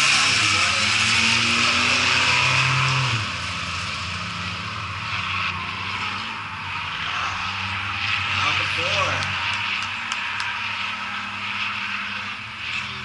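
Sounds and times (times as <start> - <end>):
distant race cars lapping: 0.0 - 13.0
race car engine passing: 0.0 - 13.0.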